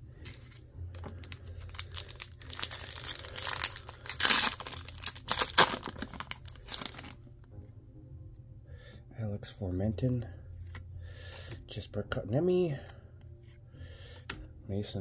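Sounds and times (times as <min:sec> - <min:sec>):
foil wrapper crinkling and tearing: 0:00.2 - 0:07.3.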